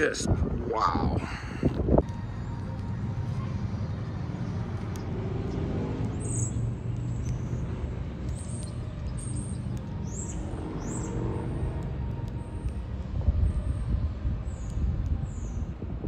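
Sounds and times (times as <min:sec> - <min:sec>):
low engine rumble: 0:00.3 - 0:16.0
high bird chirps: 0:06.1 - 0:11.3.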